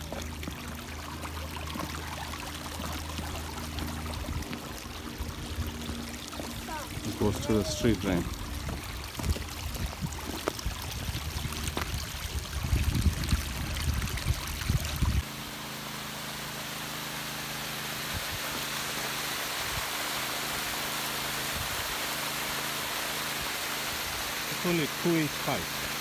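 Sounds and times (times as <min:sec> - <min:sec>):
faint steady hum: 0:00.0 - 0:19.1
water gushing from a hose: 0:00.0 - 0:26.0
water running along a ditch: 0:00.0 - 0:26.0.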